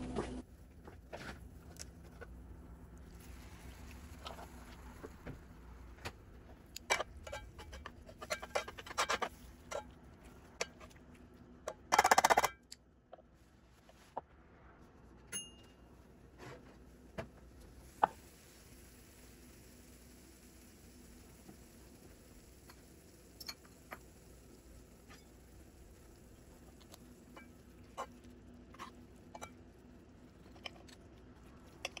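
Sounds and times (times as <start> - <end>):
utensils and dishes clicking: 11.7 - 12.8.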